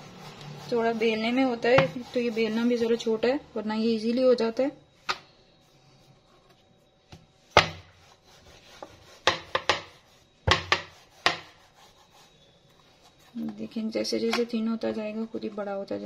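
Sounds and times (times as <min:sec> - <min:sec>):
rolling pin rubbing dough: 0:00.0 - 0:03.3, 0:07.4 - 0:13.8
rolling pin knocking surface: 0:08.8 - 0:11.6.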